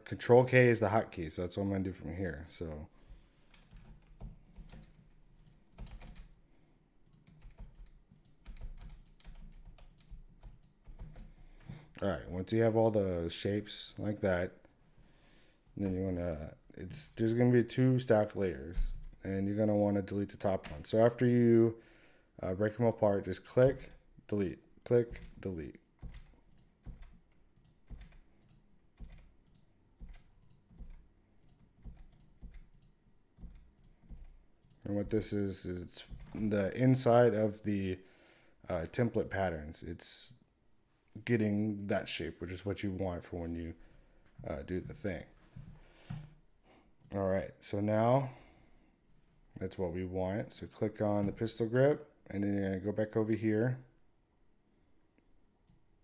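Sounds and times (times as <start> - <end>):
keyboard and mouse clicking: 3.5 - 6.4, 7.0 - 11.4, 25.0 - 36.5.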